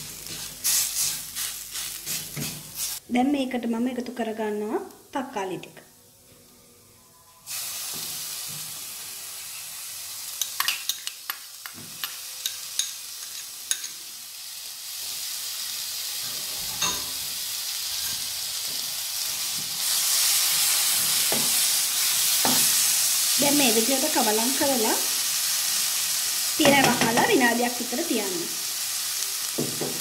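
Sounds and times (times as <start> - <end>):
food sizzling in a pan: 0.0 - 3.0, 7.4 - 30.0
spoon clicking against a bowl: 10.4 - 11.4.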